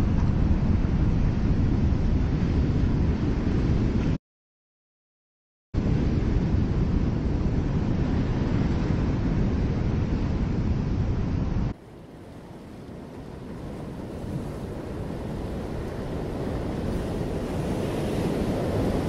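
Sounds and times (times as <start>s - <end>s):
wind: 0.0s - 4.2s, 5.8s - 19.0s
ocean surf: 5.8s - 19.0s.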